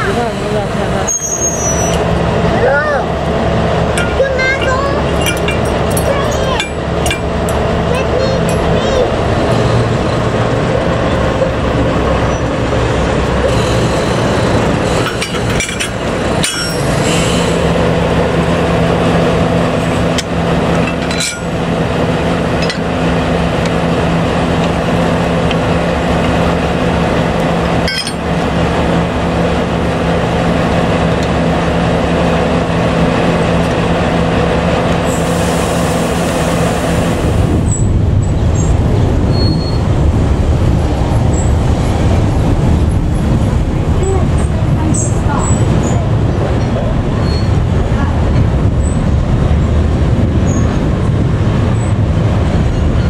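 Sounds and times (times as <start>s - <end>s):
diesel locomotive idling: 0.0s - 53.0s
metal clanks of buffers: 3.9s - 7.6s, 13.4s - 17.6s, 19.8s - 21.7s.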